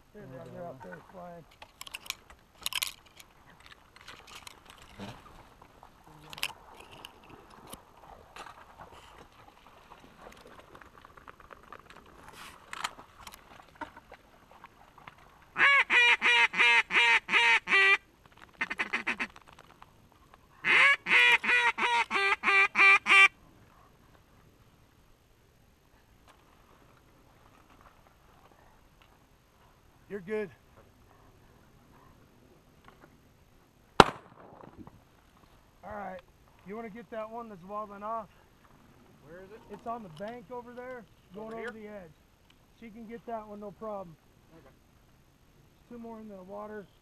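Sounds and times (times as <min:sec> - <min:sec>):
faint rustling and clicks: 0:00.4 - 0:15.6, 0:18.1 - 0:20.6, 0:25.9 - 0:30.0, 0:30.6 - 0:33.6, 0:38.2 - 0:45.2
duck call quacks: 0:15.6 - 0:18.0, 0:18.6 - 0:19.3, 0:20.6 - 0:23.3.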